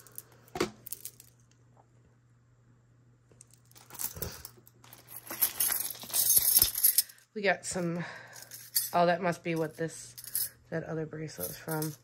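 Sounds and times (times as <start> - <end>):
jewelry clinking: 0.0 - 1.4, 3.4 - 10.7, 11.3 - 12.0
plastic bags crinkling: 3.8 - 6.8.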